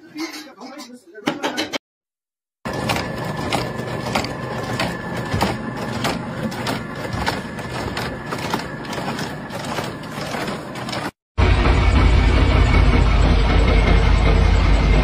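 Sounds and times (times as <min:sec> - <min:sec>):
machinery rattling and clacking: 0:02.6 - 0:11.2.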